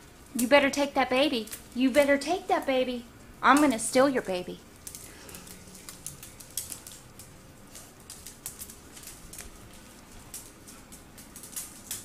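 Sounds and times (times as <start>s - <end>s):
claws clicking on tile floor: 1.4s - 2.2s, 4.7s - 12.0s.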